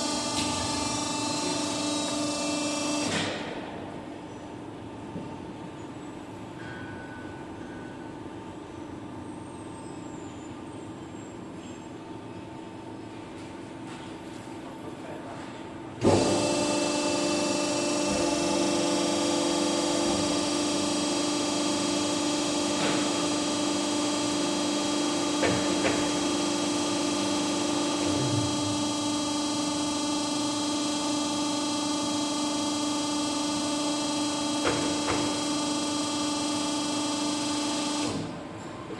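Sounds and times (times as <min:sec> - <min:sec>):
hydraulic pump humming: 0:00.0 - 0:03.8, 0:16.0 - 0:38.5.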